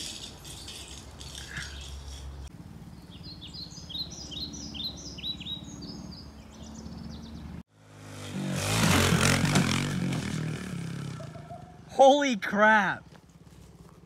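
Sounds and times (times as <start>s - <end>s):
songbird chirping: 0.0s - 7.7s
distant motorbike engine hum: 0.1s - 12.0s, 13.0s - 14.0s
motorbike revving past: 2.6s - 11.9s.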